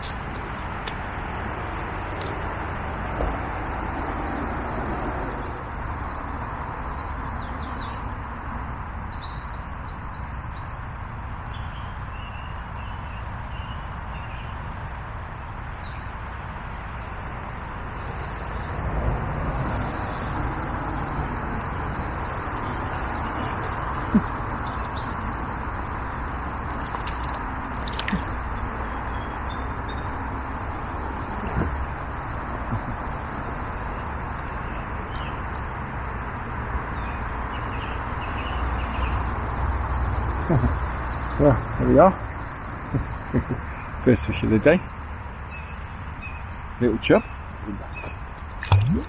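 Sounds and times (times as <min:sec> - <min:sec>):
small birds chirping: 0:06.8 - 0:08.2, 0:09.0 - 0:16.2, 0:17.9 - 0:18.9, 0:19.8 - 0:20.4, 0:22.2 - 0:35.9, 0:36.9 - 0:49.0.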